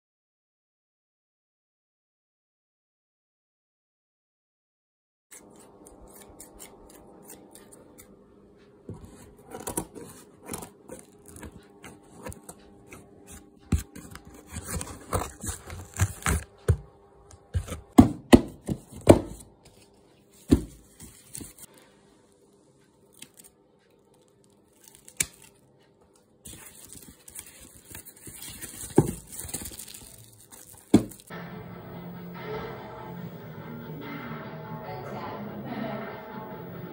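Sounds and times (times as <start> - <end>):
scissors cutting packing tape: 5.3 - 8.1, 9.5 - 16.7, 24.2 - 25.7
music: 31.3 - 36.9.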